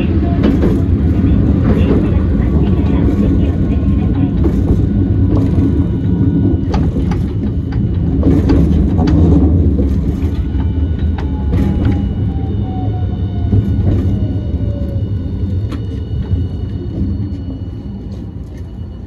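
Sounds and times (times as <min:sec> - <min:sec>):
motor whine: 0:00.0 - 0:19.0
tram rumbling: 0:00.0 - 0:19.0.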